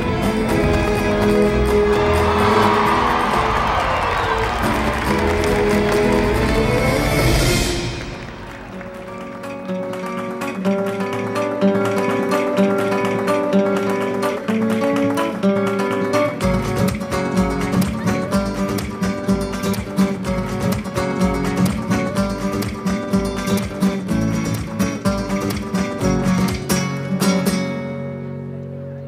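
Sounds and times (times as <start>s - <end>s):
acoustic guitar music: 0.0s - 29.0s.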